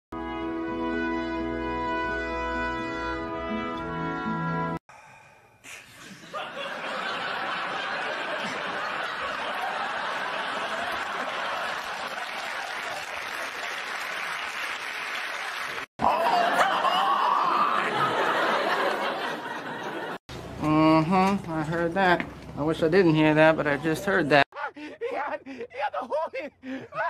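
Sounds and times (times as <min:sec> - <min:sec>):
studio audience laughing: 0:06.0 - 0:14.2, 0:15.3 - 0:20.2.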